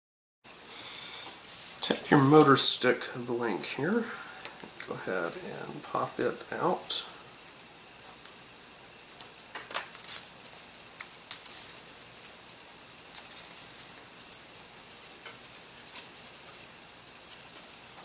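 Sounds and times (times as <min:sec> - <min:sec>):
handling rustle: 0:01.4 - 0:02.8, 0:09.0 - 0:18.0.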